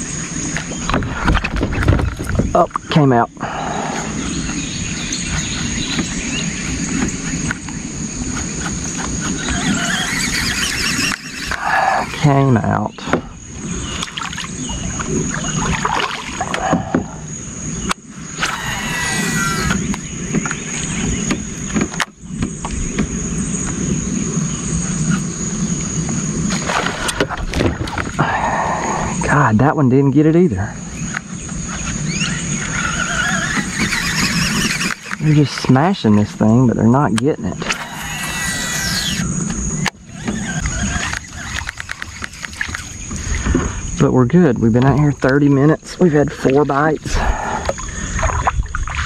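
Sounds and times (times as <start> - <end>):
insect drone: 0.0 - 49.0
rumbling outdoor background: 0.0 - 49.0
faint bird chirps: 30.6 - 36.3.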